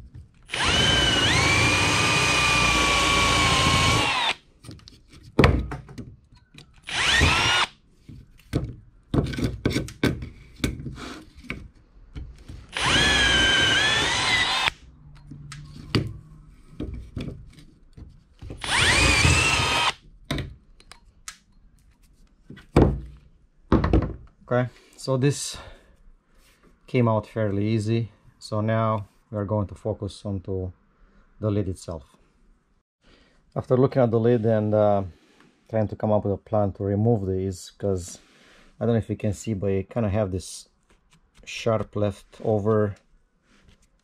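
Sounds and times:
power drill whining: 0.4s - 4.4s, 6.8s - 7.8s, 12.7s - 14.8s, 18.6s - 20.0s.

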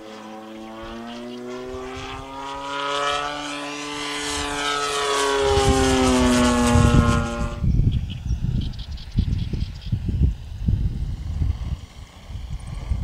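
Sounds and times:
model airplane engine flying past: 0.0s - 13.0s
wind rumble on microphone: 4.0s - 13.0s.

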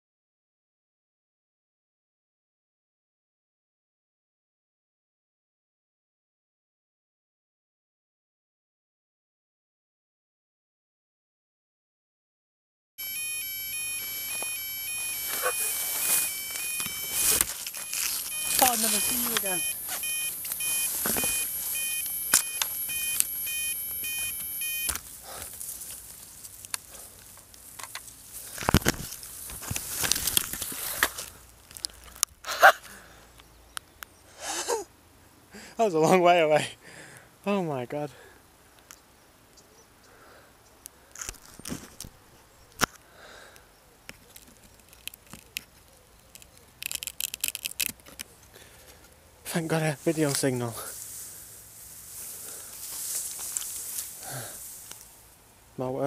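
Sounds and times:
high-pitched alarm beeping: 13.0s - 25.0s
rustling of crop stalks: 13.1s - 33.4s, 44.2s - 56.0s.

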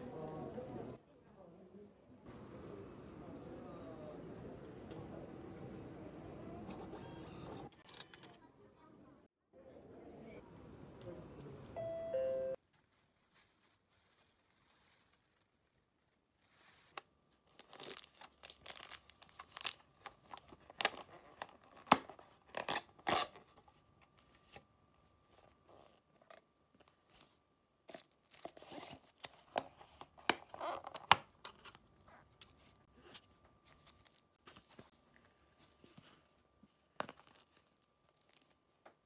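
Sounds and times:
plastic bag rustling: 12.6s - 20.5s.

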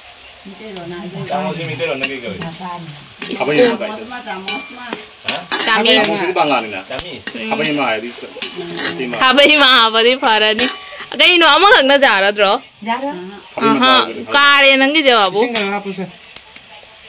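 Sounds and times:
oil sizzling: 0.0s - 17.0s
metal spatula scraping wok: 0.8s - 11.6s.

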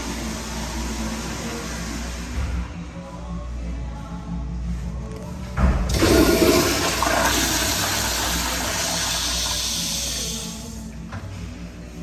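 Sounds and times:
toilet flushing: 0.0s - 2.5s, 5.8s - 10.8s.

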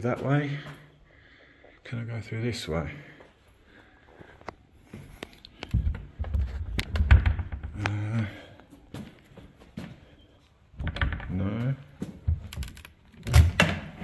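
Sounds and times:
door knocks and thuds: 6.9s - 7.8s.

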